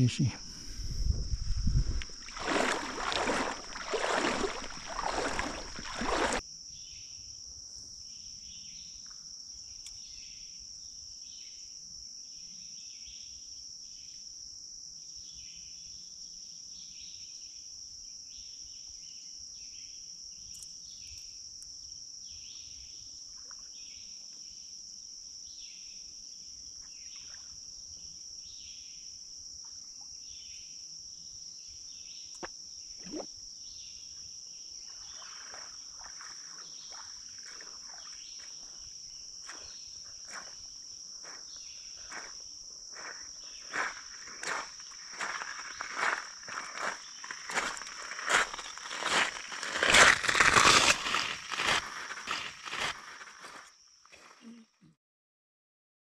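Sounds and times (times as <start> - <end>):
high insect drone: 0.0 - 17.1, 17.7 - 54.4
crickets chirping: 0.0 - 54.8
water splashing and sloshing: 1.4 - 6.4, 34.8 - 39.7.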